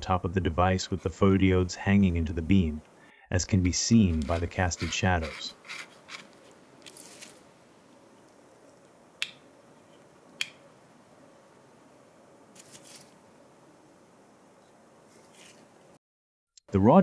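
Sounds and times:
faint scratchy rustling: 3.9s - 7.5s, 12.5s - 13.3s, 15.0s - 16.0s.

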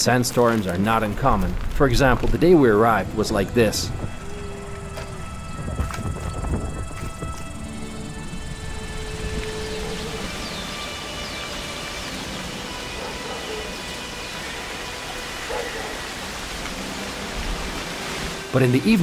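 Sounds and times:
strong wind rushing: 1.4s - 11.6s.

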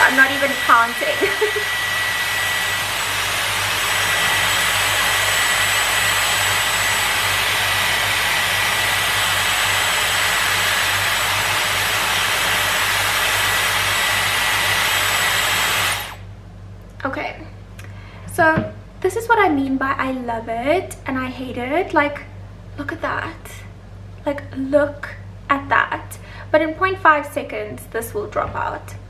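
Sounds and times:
hair styler blowing air: 0.0s - 16.2s.

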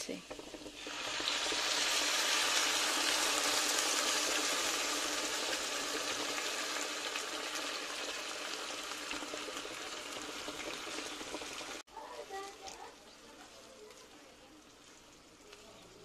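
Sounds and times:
sauce sizzling in a hot pan: 0.0s - 16.0s.

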